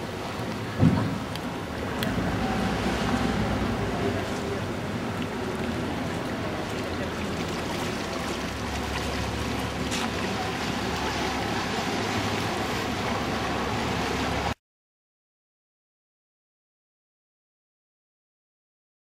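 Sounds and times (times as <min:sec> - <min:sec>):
boat engine humming: 0:00.0 - 0:14.6
wake washing: 0:00.0 - 0:14.6.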